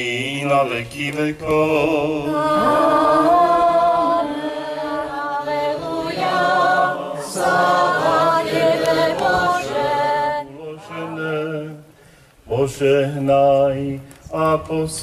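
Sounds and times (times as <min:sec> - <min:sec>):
group singing unaccompanied chant: 0:00.0 - 0:11.9.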